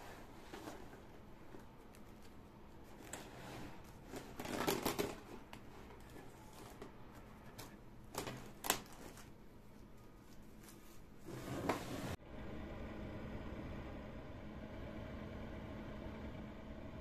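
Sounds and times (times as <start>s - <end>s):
plastic cling film crinkling: 0.5s - 11.3s.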